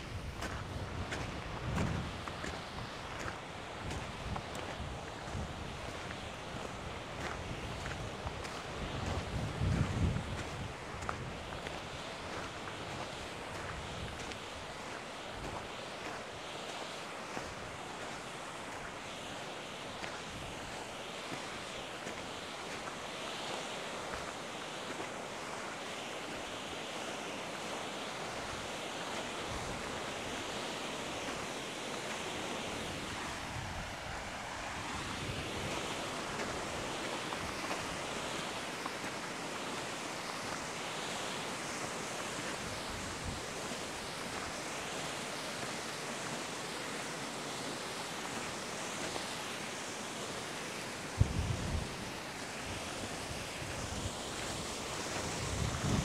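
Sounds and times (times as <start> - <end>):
wind buffeting microphone: 0.0 - 11.7, 51.2 - 52.1, 53.3 - 56.0.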